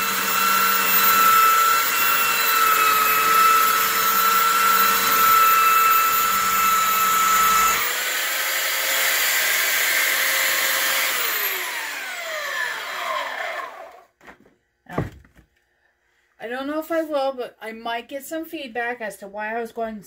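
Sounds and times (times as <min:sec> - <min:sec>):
belt sander motor whine: 0:00.0 - 0:14.1.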